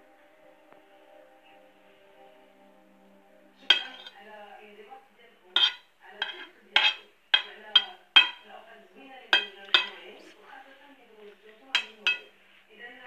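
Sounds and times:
metal spoon clinking on plate: 3.7s - 4.2s, 5.6s - 8.5s, 9.4s - 10.1s, 11.7s - 12.3s.

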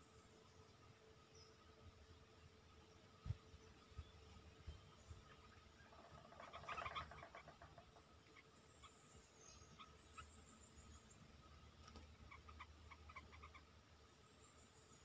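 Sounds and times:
birds chattering: 3.3s - 13.8s.

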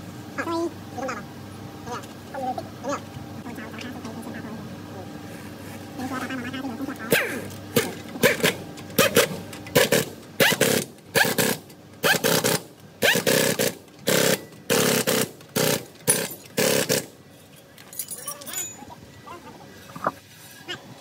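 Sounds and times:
pneumatic impact wrench hammering: 7.2s - 17.1s.

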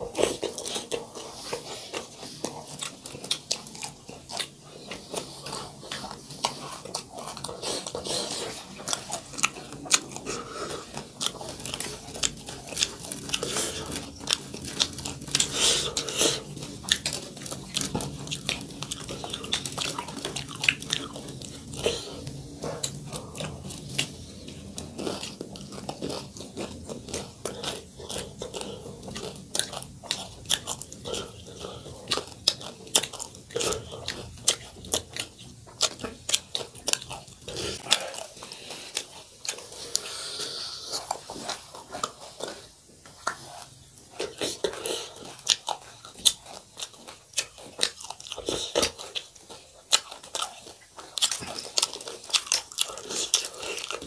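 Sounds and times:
chewing and crunching food: 0.0s - 54.0s.

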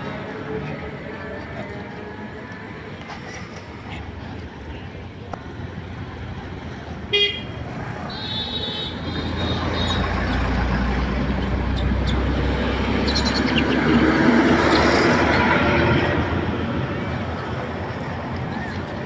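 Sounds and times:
heavy vehicles rumbling past: 0.0s - 19.0s
vehicle horn blast: 7.1s - 7.5s, 8.1s - 9.6s.

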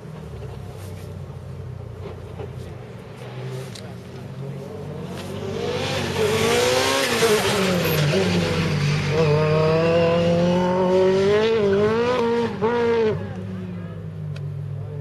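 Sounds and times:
car passing rush: 0.0s - 14.2s
race car engine revving: 2.0s - 14.0s.

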